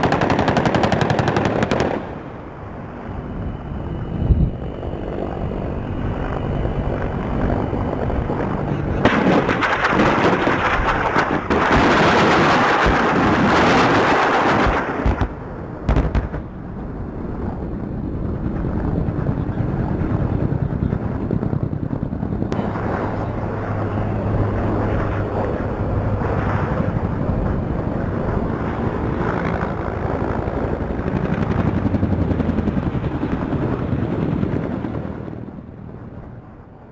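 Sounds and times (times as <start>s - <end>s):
helicopter rotor and turbine: 0.0s - 36.9s.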